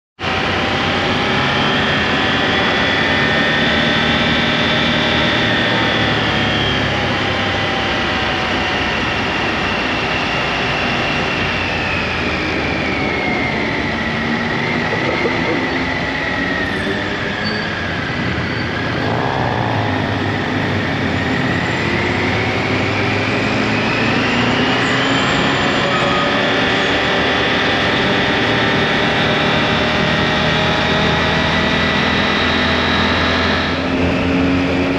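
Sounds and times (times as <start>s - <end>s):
wind noise: 18.3s - 22.6s.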